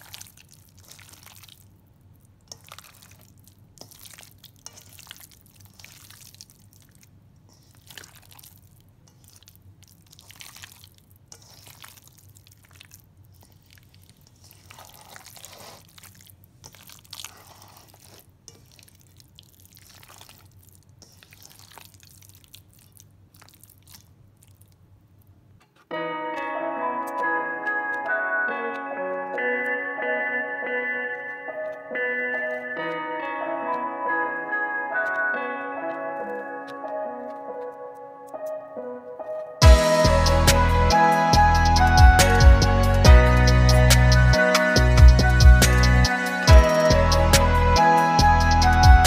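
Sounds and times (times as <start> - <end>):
wet squelches of raw chicken: 0.0 - 25.4
music with ticking beat: 39.6 - 49.0.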